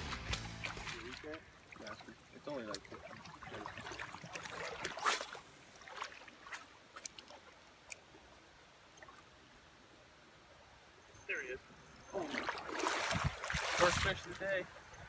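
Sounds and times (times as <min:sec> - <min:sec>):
river water splashing around legs: 0:00.0 - 0:08.1, 0:12.1 - 0:15.0.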